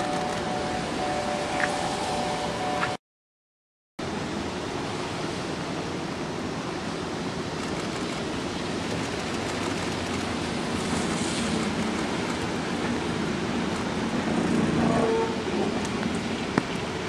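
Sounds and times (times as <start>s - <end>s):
train rolling past: 0.0s - 3.0s, 7.6s - 17.0s.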